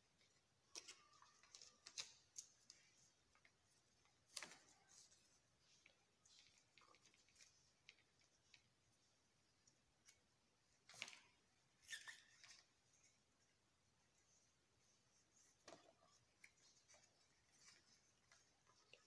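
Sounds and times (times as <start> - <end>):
paper crinkling and rustling: 0.1 - 8.8, 14.2 - 19.0.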